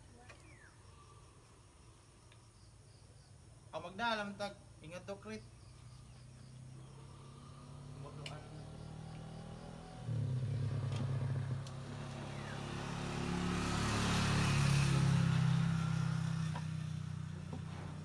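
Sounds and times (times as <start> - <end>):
vehicle engine passing by: 5.9 - 18.0.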